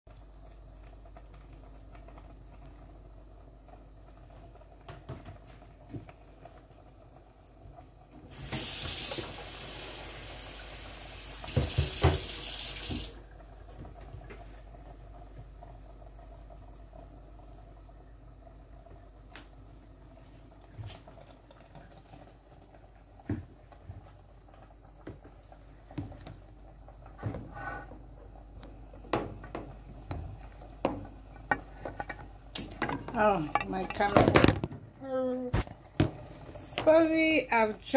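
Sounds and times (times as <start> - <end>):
tap running into sink: 8.3 - 9.4, 11.4 - 13.2.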